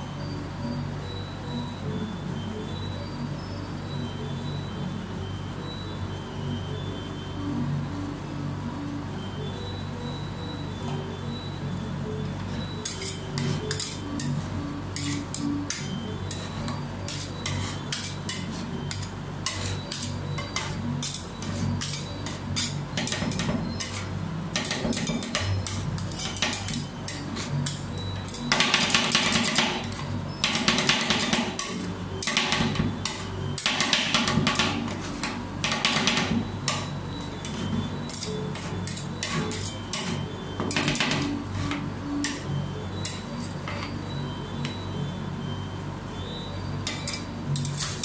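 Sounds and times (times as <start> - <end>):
metal spatulas chopping on steel pan: 12.8 - 43.9, 46.8 - 48.0.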